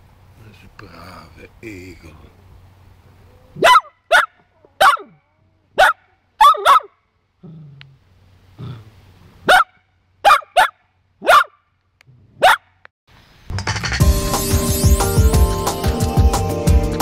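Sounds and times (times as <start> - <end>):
small dog barking: 3.4 - 7.0, 9.4 - 11.6, 12.4 - 12.7.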